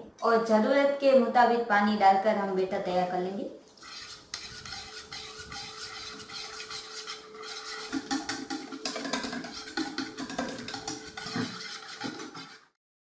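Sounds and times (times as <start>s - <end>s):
whisk beating batter in bowl: 3.8s - 12.8s.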